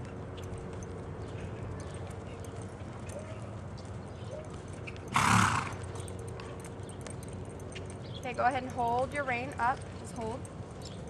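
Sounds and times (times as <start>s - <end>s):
faint hoofbeats in dirt: 0.0s - 11.0s
horse snorting: 5.1s - 5.9s.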